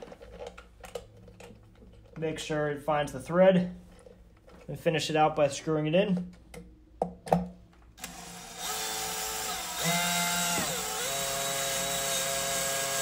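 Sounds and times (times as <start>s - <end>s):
cordless drill motor whine: 8.0s - 13.0s.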